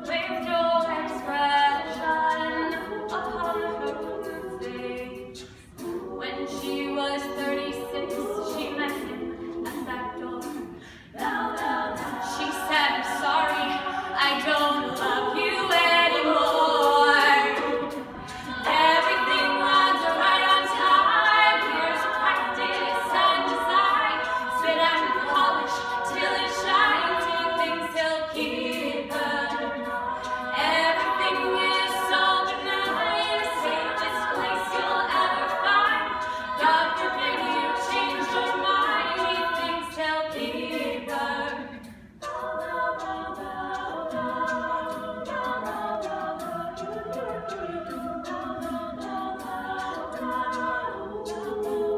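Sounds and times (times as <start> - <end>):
a cappella group singing: 0.0 - 51.9.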